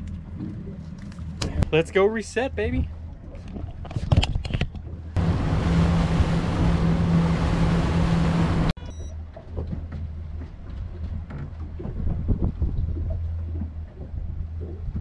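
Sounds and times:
wind and spray rush: 5.2 - 8.7
boat engine drone: 5.2 - 9.6.

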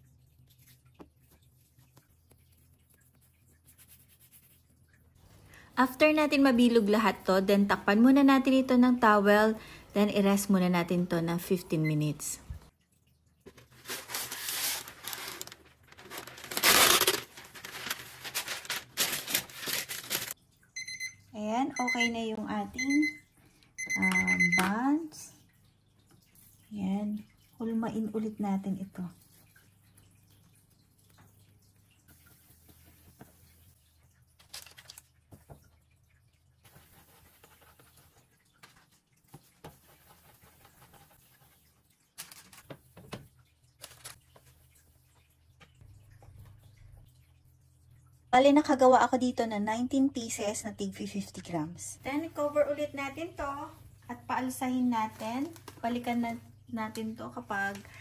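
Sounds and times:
paper rustling and crinkling: 13.5 - 20.4, 34.4 - 35.1, 42.2 - 43.2, 43.8 - 44.6
parchment paper ripping: 13.7 - 20.4.

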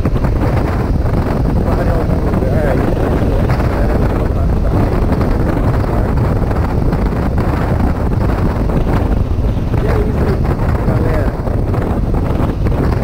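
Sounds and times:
motorcycle engine: 0.0 - 13.0
road noise: 0.0 - 13.0
wind buffeting microphone: 0.0 - 13.0.

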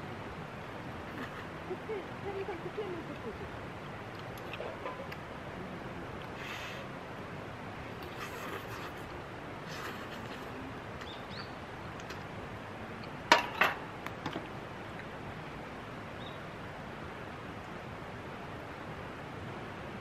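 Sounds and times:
background hiss: 0.0 - 20.0.

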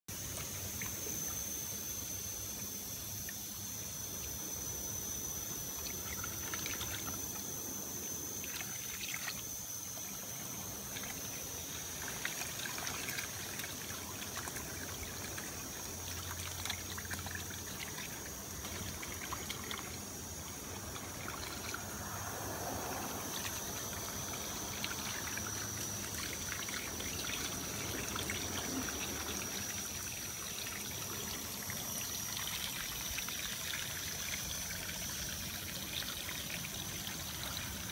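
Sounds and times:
faint steady high tone: 0.1 - 37.9
water pouring from hose onto soil: 8.4 - 37.9.

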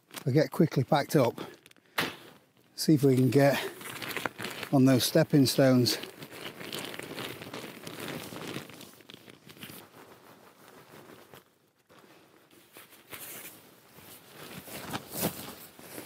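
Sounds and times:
camping gear rustling: 0.0 - 16.0.

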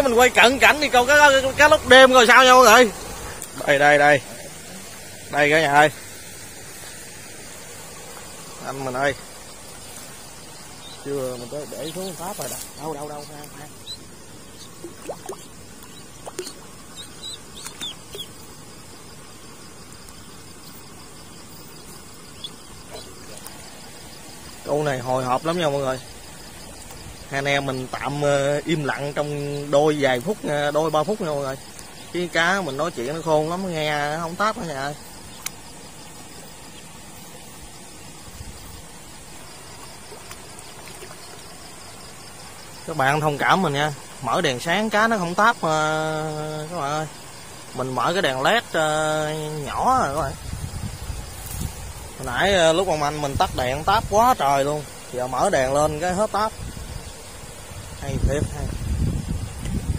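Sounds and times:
crickets chirping: 0.0 - 59.9
faint even hiss: 0.0 - 59.9
faint water splashes: 0.0 - 59.9
faint small ticks: 3.3 - 3.6, 13.4 - 18.5, 19.9 - 20.8, 21.4 - 23.6, 31.6 - 32.1, 35.1 - 35.8, 39.7 - 41.6, 59.4 - 59.9
duckling peeping: 10.4 - 18.5, 21.6 - 23.5.

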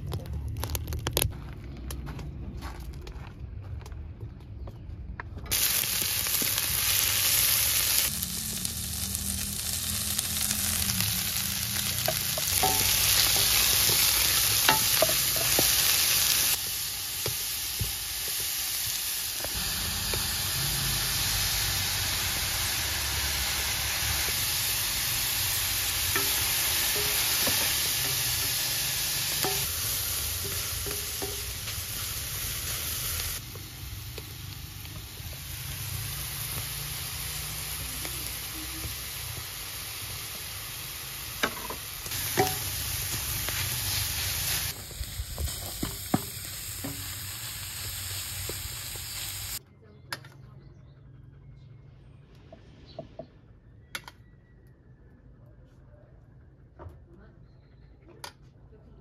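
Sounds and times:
vegetables sizzling in hot oil: 5.5 - 49.6.

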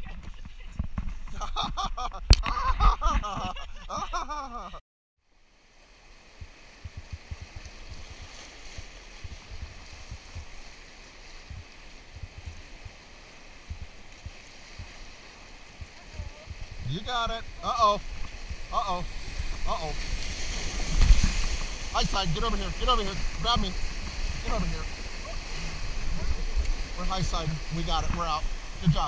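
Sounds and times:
whitewater rushing: 5.8 - 29.0
low thumps: 13.6 - 15.1
person's voice: 22.0 - 23.8, 24.4 - 24.9, 26.1 - 29.0.

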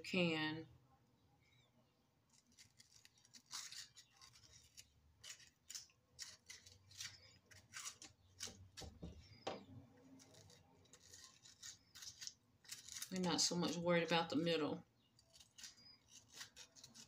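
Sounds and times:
knife cutting tomato: 2.3 - 13.8, 15.1 - 17.0.

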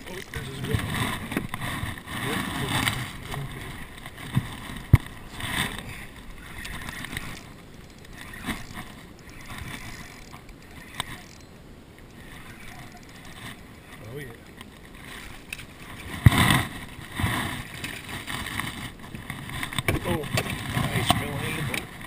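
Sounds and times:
fishing reel cranking: 5.4 - 13.6.

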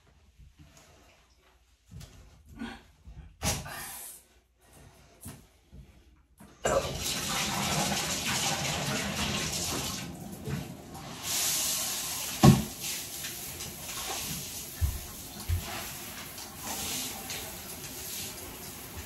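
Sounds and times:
shower water running into bathtub: 6.6 - 19.0.

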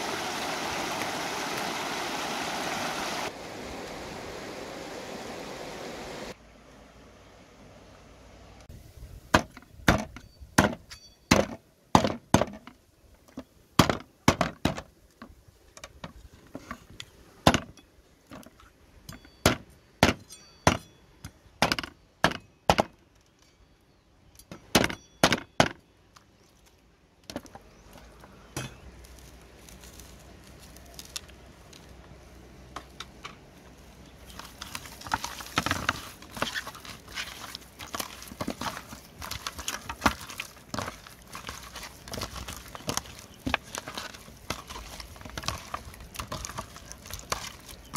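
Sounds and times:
hands rustling rubbing meat: 33.4 - 47.9.

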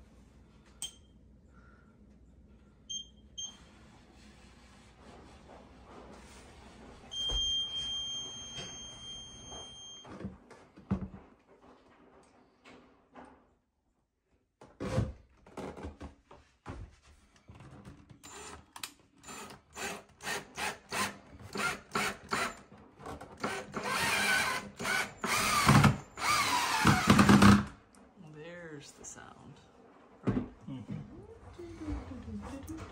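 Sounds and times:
cordless drill driving screws: 18.2 - 18.6, 19.2 - 22.6, 23.4 - 27.7.

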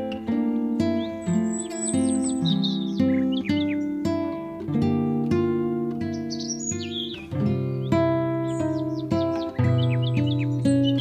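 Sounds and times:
calm instrumental music: 0.0 - 11.0
high falling bird chirps: 0.8 - 4.1, 6.0 - 11.0.

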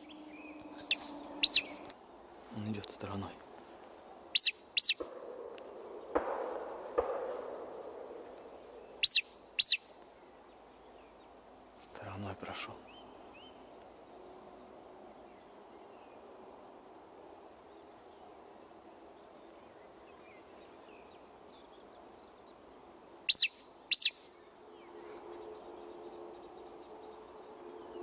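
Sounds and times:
faint bird chirping: 0.0 - 1.9, 4.3 - 5.1, 8.8 - 16.6, 17.8 - 28.0
woodcock high squeaks: 0.0 - 1.9, 4.4 - 5.1, 9.0 - 9.9, 23.3 - 24.3.

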